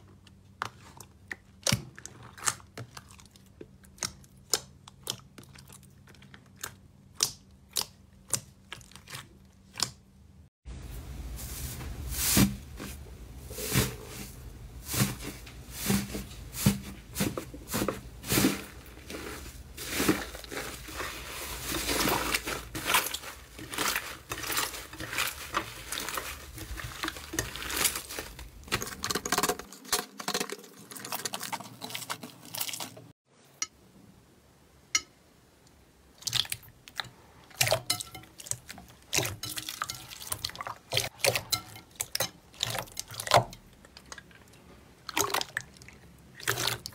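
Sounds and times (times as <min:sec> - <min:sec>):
wet slime squishing in bowl: 0:00.0 - 0:10.5, 0:12.2 - 0:33.1, 0:36.1 - 0:46.9
hands kneading sticky slime: 0:00.6 - 0:10.2, 0:14.9 - 0:29.4.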